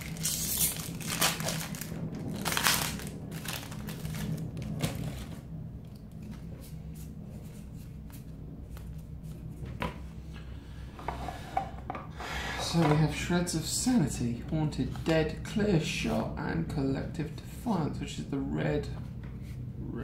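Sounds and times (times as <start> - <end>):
foil wrapper crinkling: 0.0 - 5.4.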